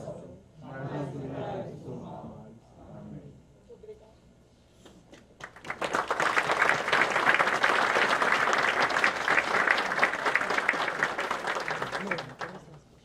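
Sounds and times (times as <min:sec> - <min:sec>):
people applauding: 0:05.3 - 0:12.8.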